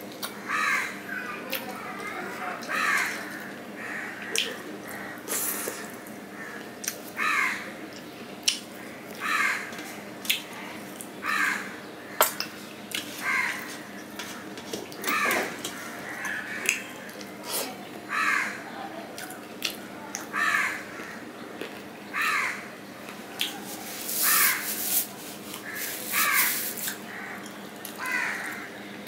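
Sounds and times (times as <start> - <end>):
crow cawing: 0.4 - 1.2, 2.7 - 5.2, 6.3 - 7.7, 8.8 - 9.7, 11.2 - 12.2, 13.2 - 13.7, 18.1 - 18.7, 20.3 - 21.2, 22.1 - 22.7, 24.2 - 24.8, 25.6 - 28.8
wet smacking of eating by hand: 7.9 - 9.3, 16.6 - 17.3, 23.4 - 23.6.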